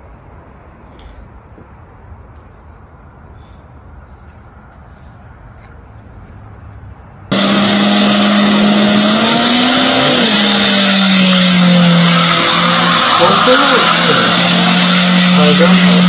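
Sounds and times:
car engine at high revs: 7.3s - 16.0s
tires spinning: 7.3s - 16.0s.

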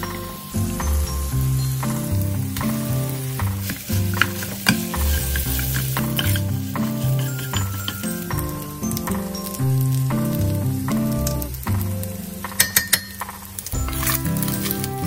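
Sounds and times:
background music: 0.0s - 15.0s
food sizzling in a pan: 0.0s - 15.0s
wooden spatula scraping pan: 2.6s - 8.5s.

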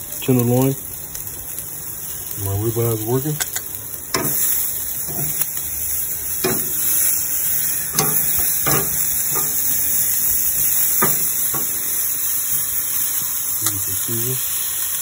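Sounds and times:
steaks sizzling on a grill: 0.0s - 15.0s
metal tongs clicking on grate: 3.4s - 5.6s, 6.4s - 7.2s, 7.9s - 10.3s, 10.9s - 12.0s.

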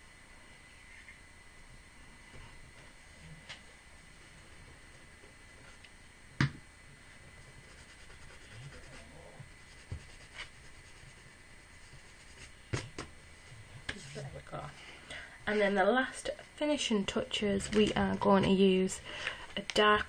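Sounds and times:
paper rubbing on card: 7.6s - 12.6s.

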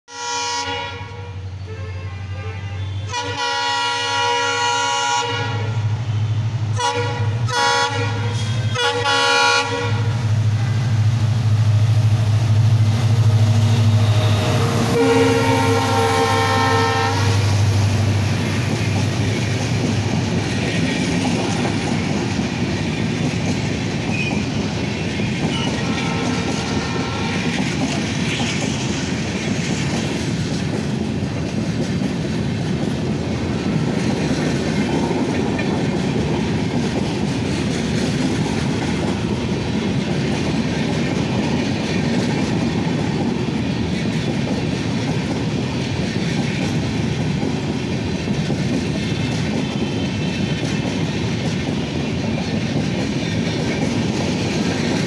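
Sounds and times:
locomotive horn blasts: 0.1s - 5.8s, 6.8s - 11.1s, 13.7s - 17.7s, 25.5s - 27.5s
diesel locomotive engine hum: 0.1s - 55.0s
train wheels clattering: 11.1s - 55.0s.

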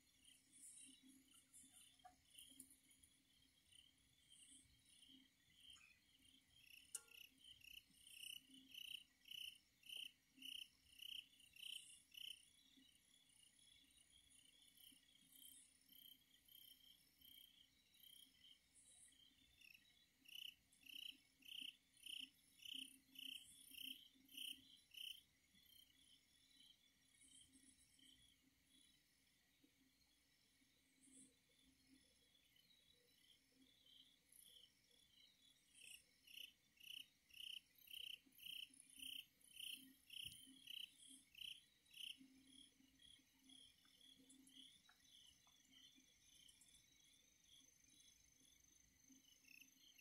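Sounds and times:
crickets chirping: 0.0s - 50.0s.

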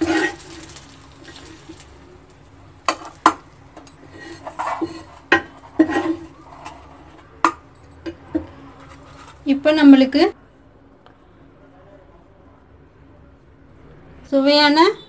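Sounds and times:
spatula scraping on a griddle: 0.0s - 2.1s, 2.8s - 7.6s, 8.4s - 9.5s.

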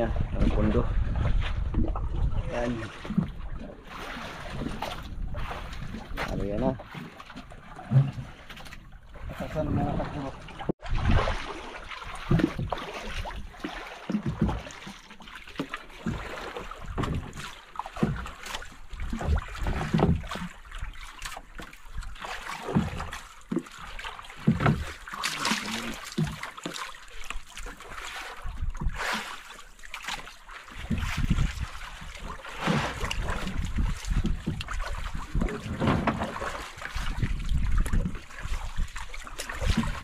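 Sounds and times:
water lapping against boat hull: 0.0s - 40.0s.

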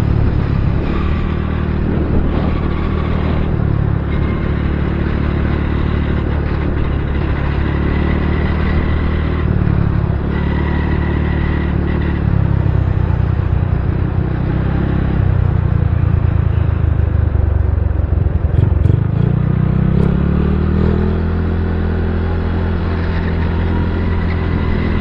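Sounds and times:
motorcycle engine running: 0.0s - 25.0s
wind and road rush: 0.0s - 25.0s.

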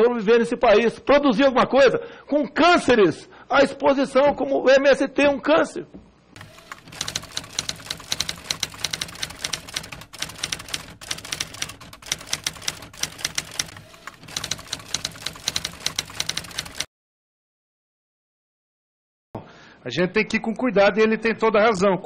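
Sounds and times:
typewriter keys clacking: 6.4s - 16.9s.

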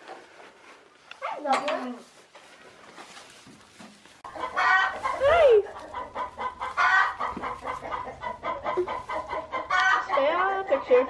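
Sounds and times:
chickens squawking and clucking: 4.2s - 11.0s.

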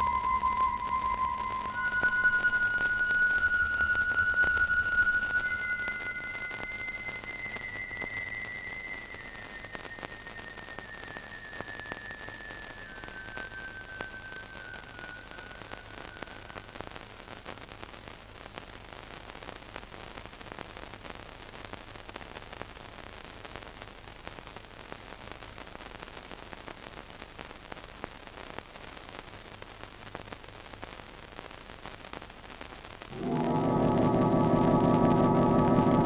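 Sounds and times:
thin high tone: 0.0s - 16.1s, 33.1s - 36.0s
film soundtrack hiss and crackle: 0.0s - 36.0s
low hum: 33.1s - 36.0s.

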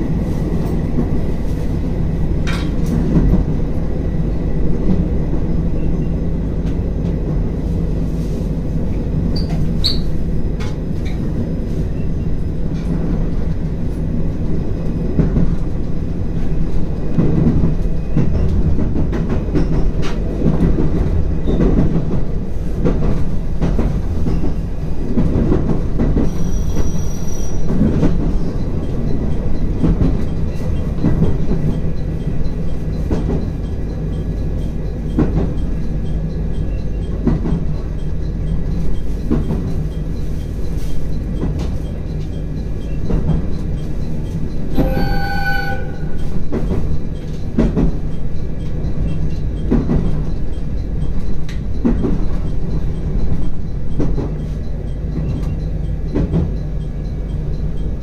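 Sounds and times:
train rumbling on rails: 0.0s - 58.0s
high wheel squeal: 9.4s - 10.2s, 26.2s - 27.7s, 44.7s - 46.4s.

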